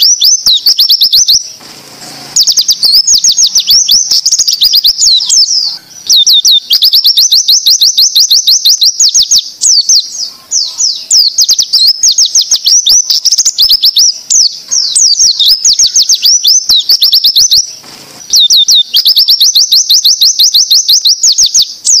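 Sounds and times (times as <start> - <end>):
bird whistling rapid sweeps: 1.8 - 6.9.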